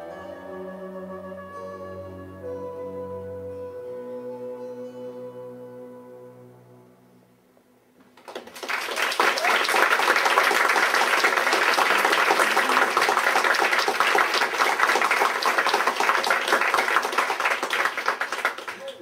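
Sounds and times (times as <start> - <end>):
audience applauding: 8.2 - 19.0.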